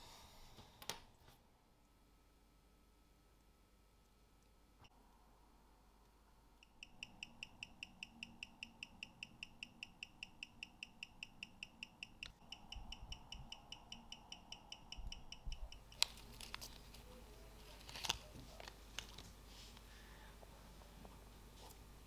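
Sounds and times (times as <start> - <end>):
tweezers clicking: 6.6 - 16.2
watch ticking: 6.6 - 16.3
plastic bag rustling: 16.0 - 19.8.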